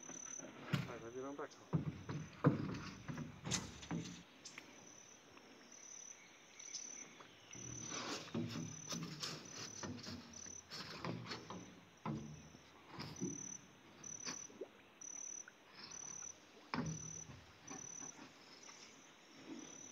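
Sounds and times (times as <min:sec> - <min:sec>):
metal boat knocking and scraping: 0:00.0 - 0:04.3, 0:07.5 - 0:14.5, 0:16.7 - 0:19.0
insects chirping: 0:00.0 - 0:19.9.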